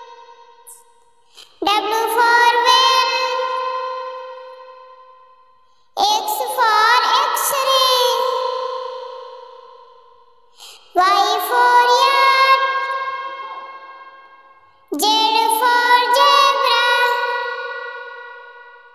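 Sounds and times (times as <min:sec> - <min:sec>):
child singing long notes: 0:10.9 - 0:13.8, 0:14.9 - 0:18.0.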